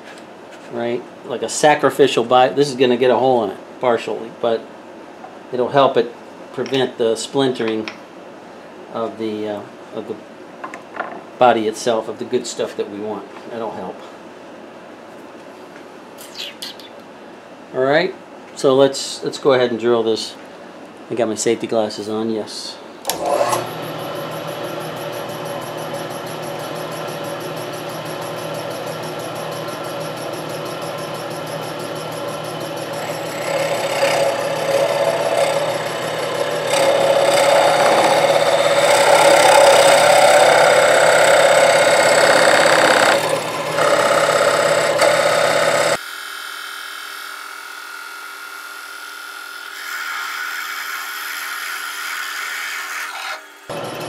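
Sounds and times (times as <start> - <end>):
machine hum: 23.0 - 48.1, 53.7 - 54.0
drill press boring wood: 23.1 - 54.0.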